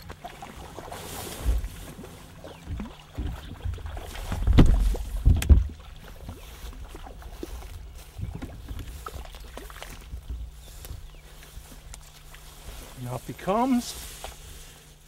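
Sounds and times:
fish splashing: 0.0 - 12.7
water movement: 0.0 - 15.0.

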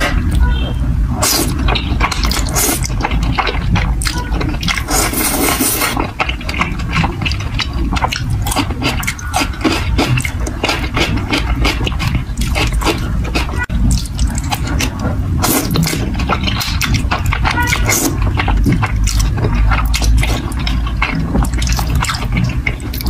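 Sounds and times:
wet slurping of noodles: 1.2 - 6.4
sticky mouth clicks: 1.2 - 23.0.

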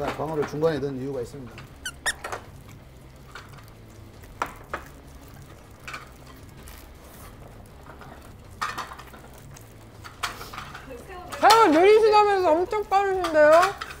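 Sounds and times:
dishes clicking and tapping: 7.8 - 12.1.

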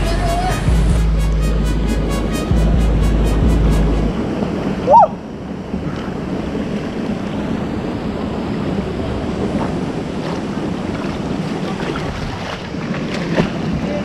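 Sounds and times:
water sloshing and rushing: 0.0 - 14.0
small splashes: 10.2 - 14.0.

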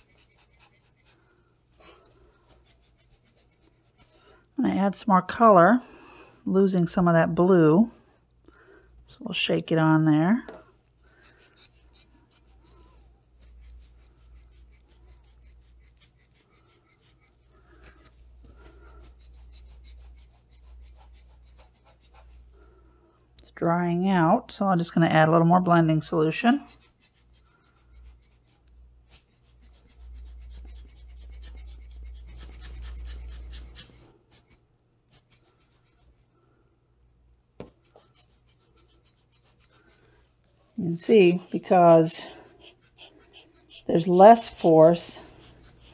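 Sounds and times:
faint scratching and rubbing: 0.0 - 4.2, 10.4 - 22.6, 25.8 - 36.4, 37.6 - 45.9.

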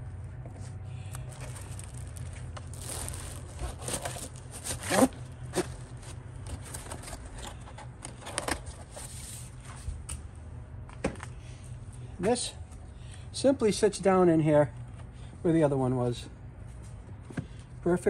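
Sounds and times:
steady low hum: 0.0 - 18.0
cardboard box handling: 1.3 - 9.4.

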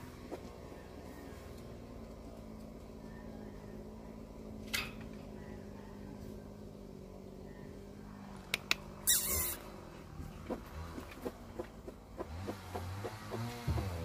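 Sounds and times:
faint steady hum: 0.0 - 12.2.

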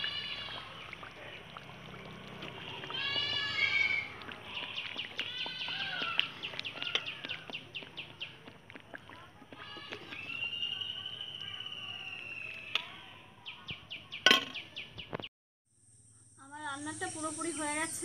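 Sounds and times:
drawn-out rising animal call: 0.0 - 12.6
quick bird-like chirps and clicks: 14.2 - 15.3.

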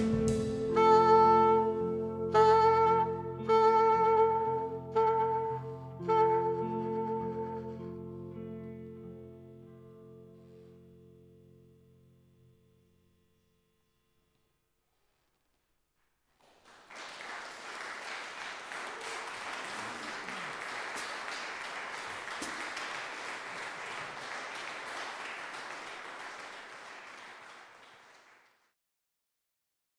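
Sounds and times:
audience applauding: 16.4 - 28.7.

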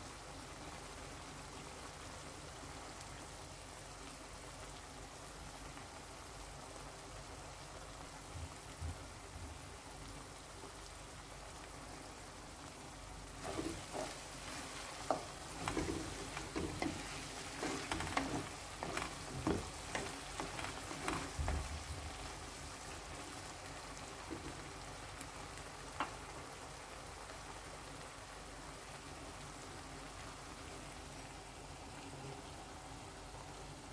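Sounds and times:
sauce sizzling in a pot: 0.0 - 33.9
wooden spoon scraping a pot: 13.4 - 21.8.

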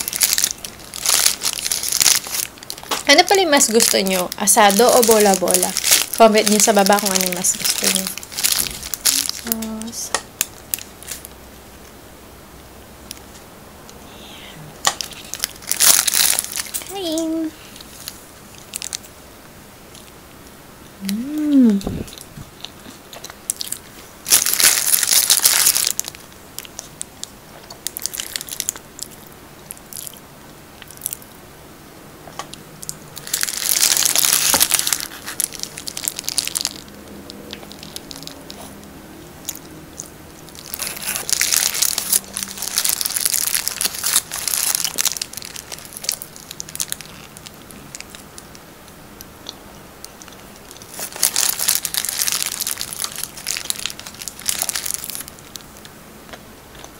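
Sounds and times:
paper wrapper crinkling: 0.0 - 11.3, 14.8 - 19.0, 23.6 - 27.0, 27.8 - 30.2, 33.2 - 38.6, 39.5 - 48.6, 50.6 - 55.7
soft chewing: 20.8 - 24.2, 26.2 - 31.4, 32.3 - 56.9.

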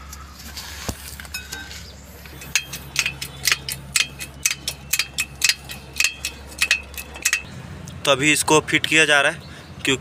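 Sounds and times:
bottle jack metallic clicks: 2.3 - 7.5.

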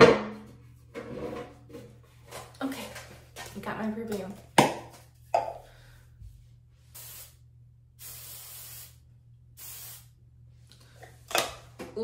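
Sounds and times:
aerosol spray hissing: 6.9 - 7.4, 8.0 - 9.0, 9.6 - 10.1.

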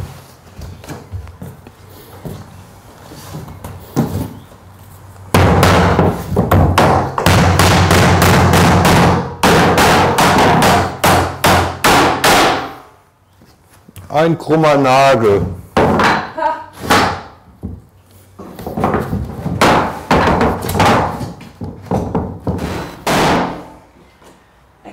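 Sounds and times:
hammer driving nails into wood: 5.4 - 12.8.

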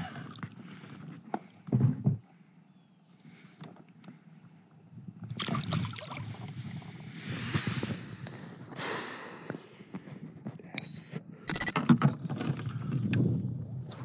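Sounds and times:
water sloshing around a kayak: 5.4 - 7.0.

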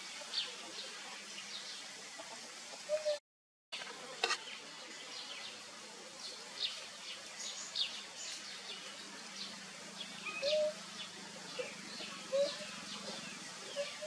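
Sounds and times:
steady outdoor hiss: 0.0 - 3.2, 3.8 - 14.0
birds chirping: 6.2 - 14.0.

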